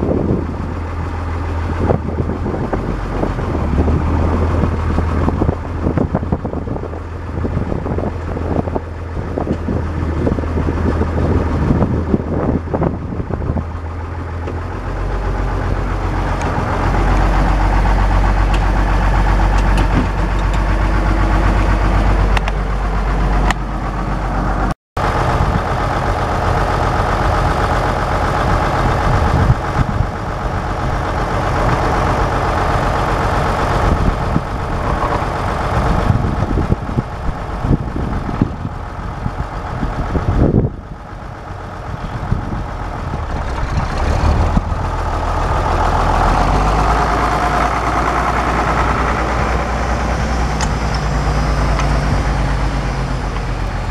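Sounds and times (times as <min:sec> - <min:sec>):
tractor diesel engine running: 0:00.0 - 0:53.9.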